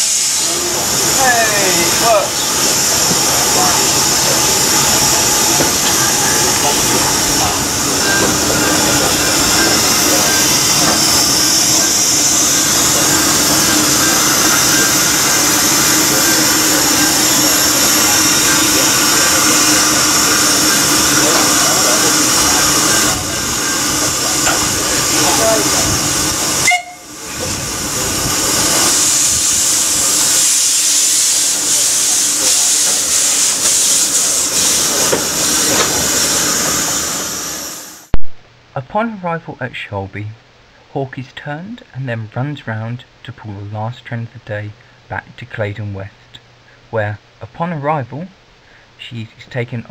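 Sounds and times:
steam hissing: 0:00.0 - 0:38.2.

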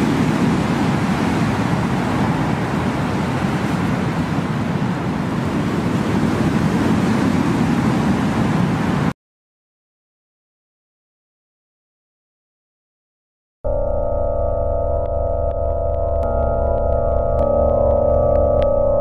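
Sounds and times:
low rushing noise: 0:13.7 - 0:19.0.

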